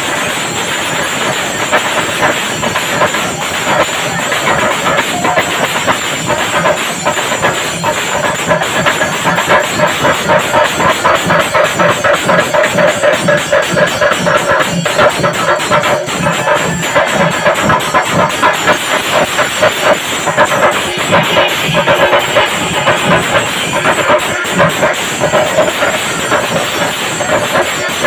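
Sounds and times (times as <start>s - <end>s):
drums beaten with sticks: 0.0s - 28.0s.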